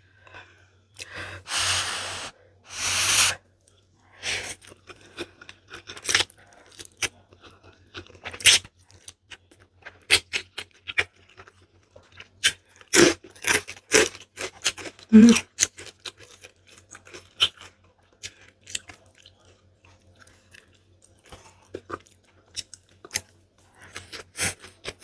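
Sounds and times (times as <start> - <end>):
person slurping noodles: 1.5 - 3.4.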